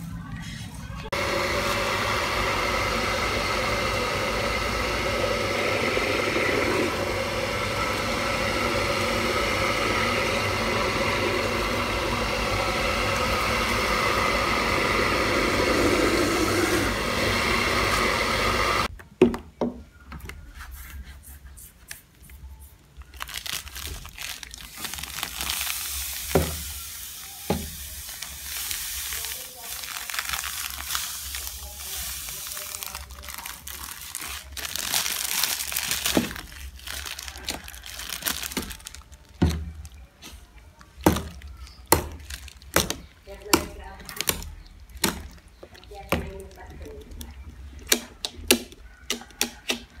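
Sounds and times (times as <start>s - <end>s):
electric mill motor humming: 1.1s - 18.9s.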